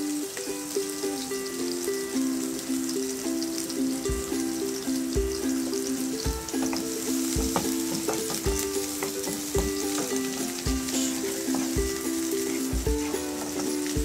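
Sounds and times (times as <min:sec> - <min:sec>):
onion sizzling in hot oil: 0:00.0 - 0:14.0
background music with steady beat: 0:00.4 - 0:14.0
wooden spatula stirring: 0:06.5 - 0:14.0.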